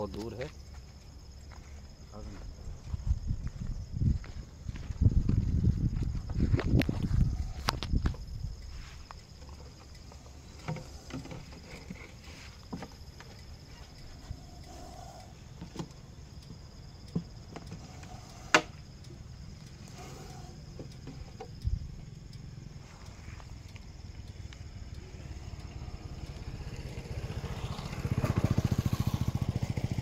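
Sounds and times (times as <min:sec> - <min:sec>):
rustles: 0:00.0 - 0:29.9
crickets chirring: 0:00.0 - 0:30.0
footsteps on grass: 0:01.5 - 0:06.8.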